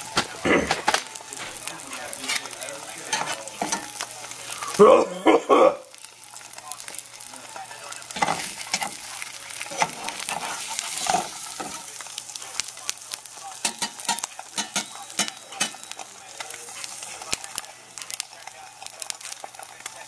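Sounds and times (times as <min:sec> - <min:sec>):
egg sizzling in a pan: 0:00.0 - 0:20.0
spatula scraping and tapping pan: 0:02.2 - 0:04.1, 0:08.2 - 0:11.9, 0:13.6 - 0:19.4.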